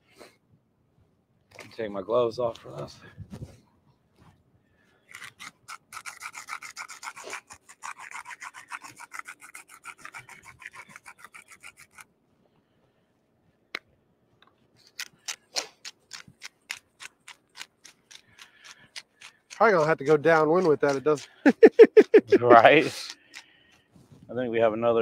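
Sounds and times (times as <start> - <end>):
pepper mill grinding: 5.1 - 12.0, 14.9 - 21.8, 22.5 - 23.5.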